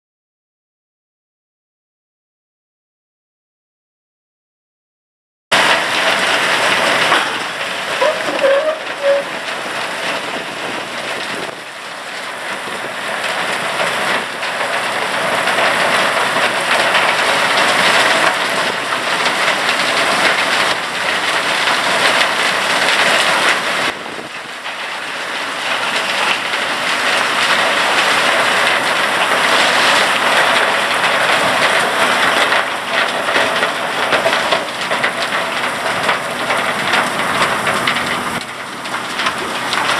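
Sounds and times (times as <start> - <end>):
rotating drum and water rushing: 5.5 - 39.9.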